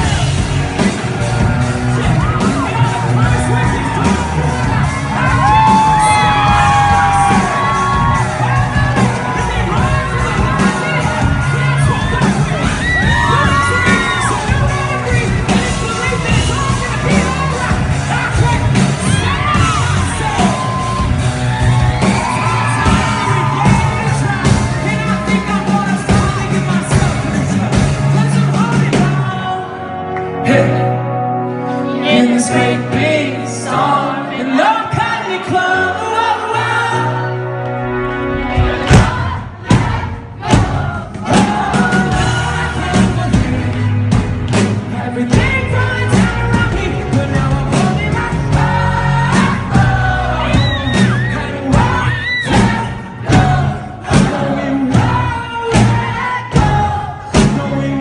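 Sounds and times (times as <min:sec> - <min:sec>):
crowd shouting and whooping: 0:00.0 - 0:30.2, 0:33.7 - 0:58.0
live pop-rock band playing: 0:00.0 - 0:58.0
man singing into a microphone: 0:23.3 - 0:31.1, 0:31.9 - 0:37.4, 0:44.8 - 0:58.0
heavy drum hits: 0:38.5 - 0:50.2.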